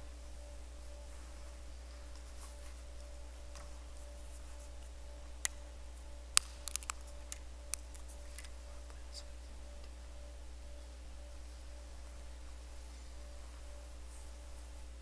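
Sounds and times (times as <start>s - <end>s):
faint steady hum: 0.0s - 15.0s
clicks and clinks of objects: 6.4s - 8.6s.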